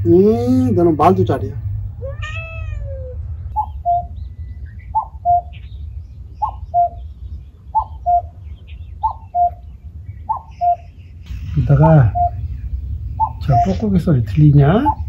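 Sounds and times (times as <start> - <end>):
steady low rumble: 0.0 - 15.0
cuckoo calling: 2.8 - 13.9, 14.6 - 15.0.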